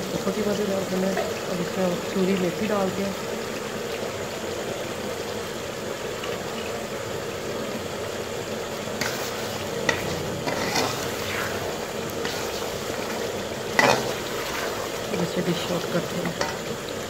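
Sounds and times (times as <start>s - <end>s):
curry sizzling and bubbling: 0.0s - 17.0s
spoon scraping a metal pot: 9.0s - 14.9s.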